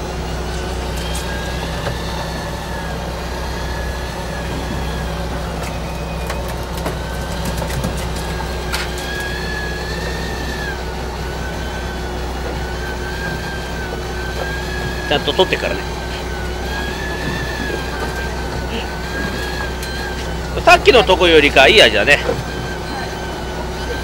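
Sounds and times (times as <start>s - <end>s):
boat engine humming: 0.0s - 24.0s
thin high whine: 8.2s - 24.0s.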